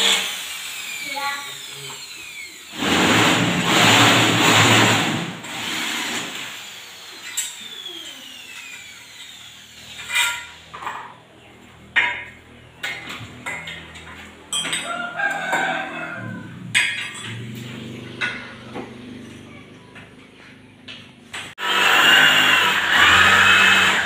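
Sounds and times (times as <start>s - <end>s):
electric drill drilling into metal: 0.0s - 10.6s, 21.6s - 24.0s
knocks and clinks: 12.0s - 16.0s, 16.7s - 18.7s.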